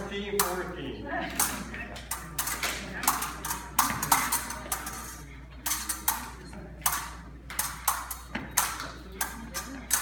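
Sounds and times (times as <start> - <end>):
epee blades clacking: 1.3 - 10.0.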